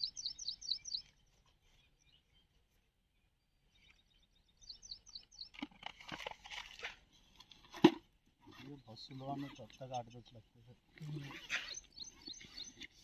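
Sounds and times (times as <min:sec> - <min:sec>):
small bird chirping: 0:00.0 - 0:05.7, 0:11.0 - 0:13.0.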